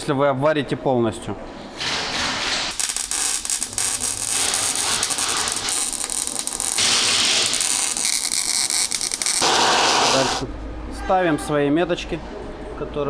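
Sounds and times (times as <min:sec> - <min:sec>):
welder crackle and hiss: 0:02.7 - 0:10.5.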